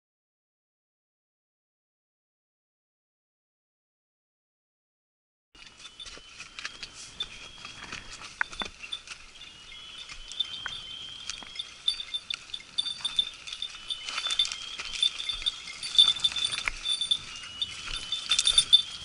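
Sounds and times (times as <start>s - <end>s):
dog collar bell jingling: 5.6s - 19.0s
footsteps on dry grass and stones: 5.6s - 19.0s.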